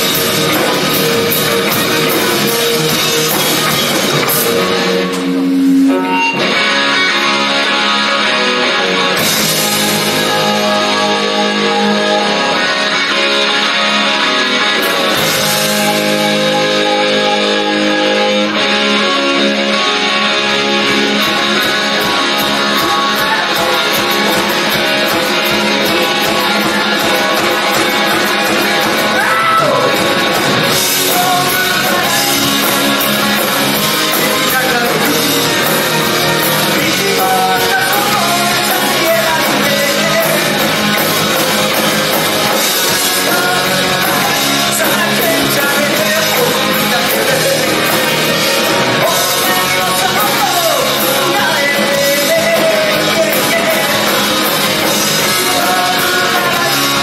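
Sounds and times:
rock band playing live: 0.0s - 57.0s
person singing: 9.2s - 14.3s, 22.0s - 24.8s, 30.7s - 41.0s, 42.5s - 57.0s.

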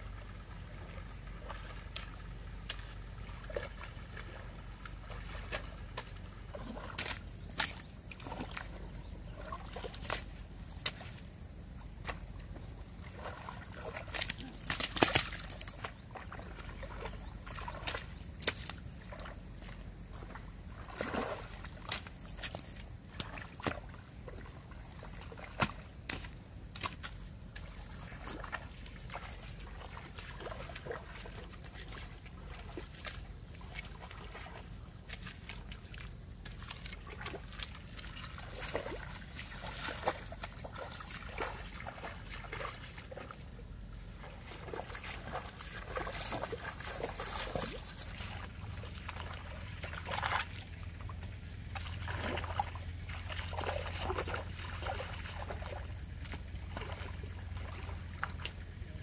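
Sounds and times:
water sloshing and trickling: 0.0s - 59.0s
hoe slapping wet mud: 0.2s - 11.3s, 13.0s - 59.0s.

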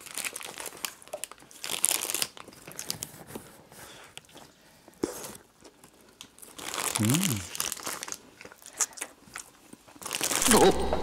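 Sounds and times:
paper wrapper crinkling and tearing: 0.0s - 3.4s, 6.2s - 10.6s
biting into burger: 6.5s - 10.7s.

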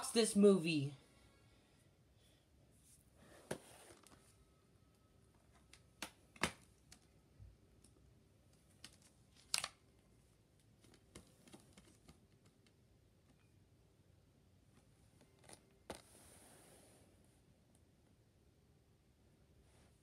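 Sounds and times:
plastic case clicking and snapping: 8.8s - 9.8s.

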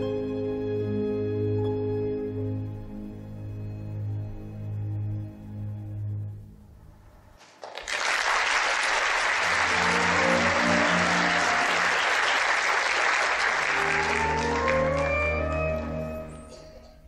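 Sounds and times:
orchestral music: 0.0s - 7.4s, 9.2s - 17.0s
audience applauding: 7.4s - 16.5s.

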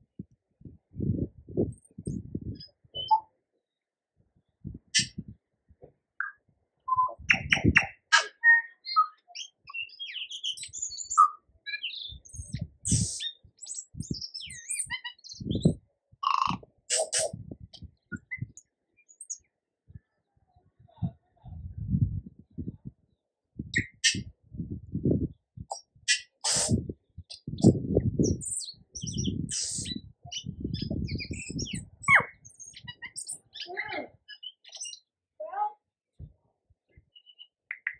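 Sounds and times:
bird singing whistles and clicks: 3.0s - 3.3s, 5.0s - 5.2s, 6.2s - 19.4s, 23.8s - 24.3s, 25.7s - 33.7s, 34.3s - 35.0s, 37.2s - 37.9s.

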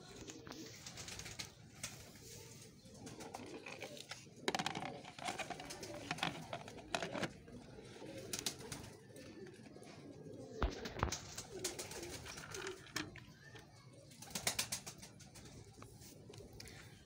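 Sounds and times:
pigeons cooing: 0.0s - 17.0s
plastic lids clicking and knocking: 3.4s - 7.5s.

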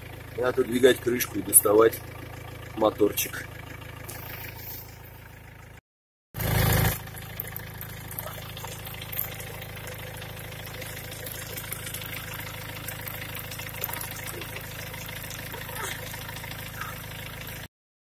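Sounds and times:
van engine idling: 0.0s - 5.8s, 6.4s - 17.7s
fluid draining into plastic bottle: 7.0s - 17.7s.

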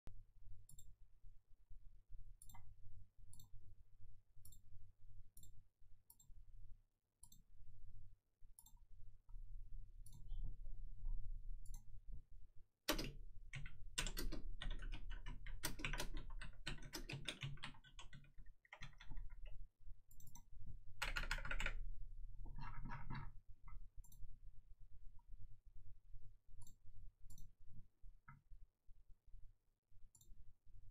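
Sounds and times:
computer keyboard typing: 12.9s - 21.9s.

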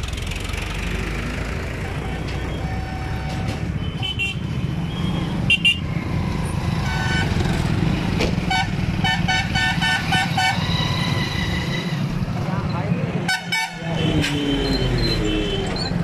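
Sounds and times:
highway traffic rumble: 0.0s - 16.0s
vehicle horn toots: 8.5s - 10.8s, 13.3s - 14.6s.

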